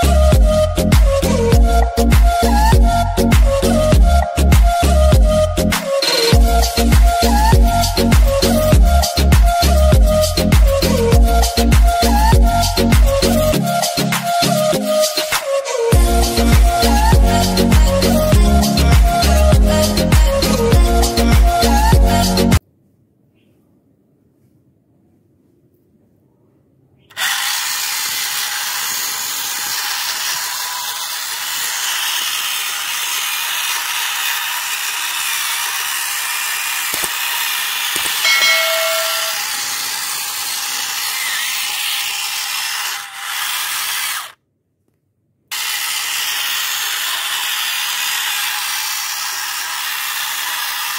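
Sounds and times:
short chime: 0:38.0 - 0:39.7.

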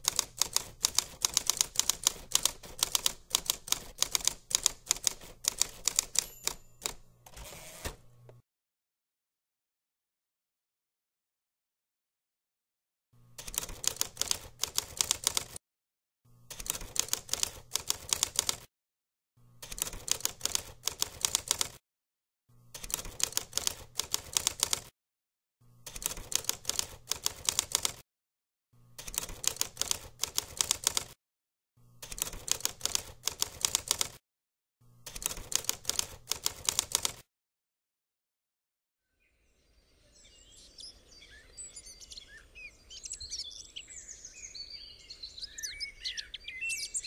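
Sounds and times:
typewriter keystrokes clattering: 0:00.0 - 0:07.0, 0:13.4 - 0:15.6, 0:16.6 - 0:18.7, 0:19.7 - 0:21.8, 0:22.8 - 0:24.9, 0:25.9 - 0:28.0, 0:29.0 - 0:31.2, 0:32.1 - 0:34.2, 0:35.1 - 0:37.2.

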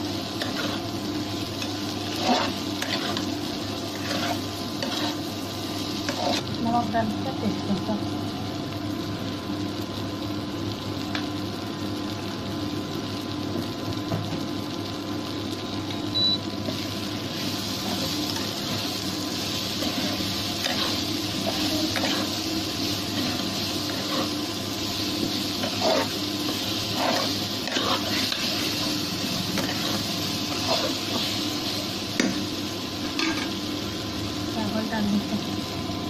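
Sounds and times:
food sizzling in a pot: 0:00.0 - 0:36.0
steady hum: 0:14.1 - 0:36.0.

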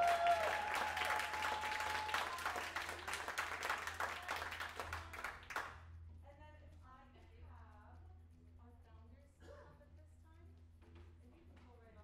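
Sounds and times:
long high whoop: 0:00.0 - 0:02.6
hands clapping: 0:00.0 - 0:05.8.

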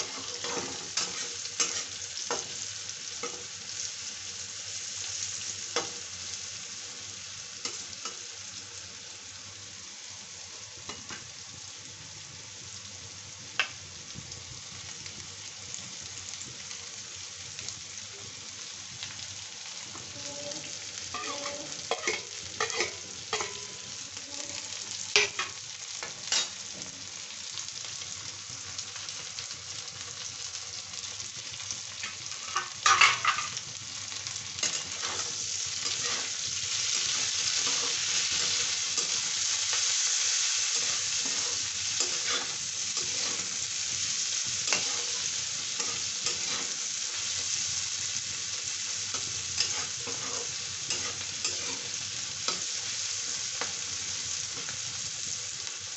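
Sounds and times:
metal spatula scraping pan: 0:00.0 - 0:02.0, 0:21.1 - 0:23.8, 0:44.7 - 0:46.8, 0:49.6 - 0:52.6
onions frying in oil: 0:00.0 - 0:55.9.

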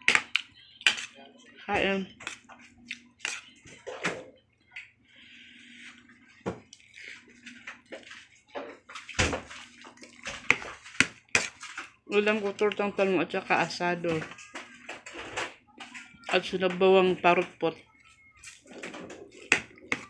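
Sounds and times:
soup sloshing: 0:02.1 - 0:13.4.

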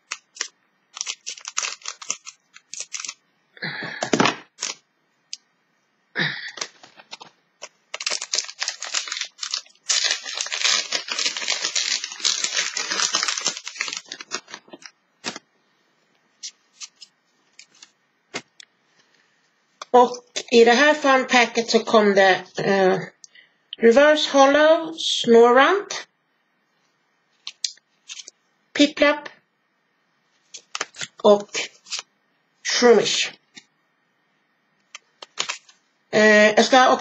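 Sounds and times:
foil wrapper crinkling and tearing: 0:00.0 - 0:03.2, 0:04.6 - 0:04.8, 0:06.6 - 0:15.4, 0:16.4 - 0:17.9, 0:27.5 - 0:28.3, 0:30.5 - 0:32.1, 0:35.0 - 0:35.8
scissors cutting foil: 0:00.0 - 0:03.2.

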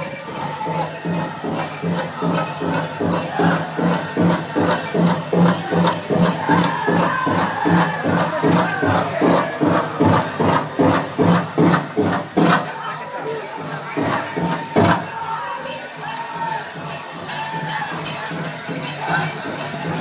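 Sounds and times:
group singing: 0:00.0 - 0:13.1, 0:13.8 - 0:20.0
jingling bells: 0:00.0 - 0:20.0
large drum beating: 0:00.6 - 0:12.9, 0:13.9 - 0:15.4.

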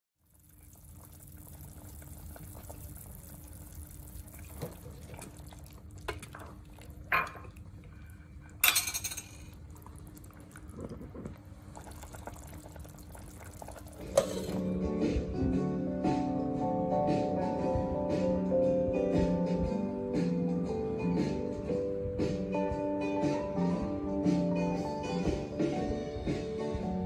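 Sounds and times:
soup bubbling in a pot: 0:00.2 - 0:08.6, 0:09.2 - 0:14.6.

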